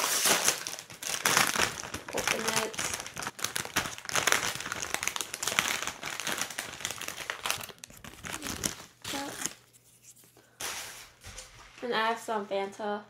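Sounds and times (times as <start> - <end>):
chip bag crinkling: 0.0 - 9.8.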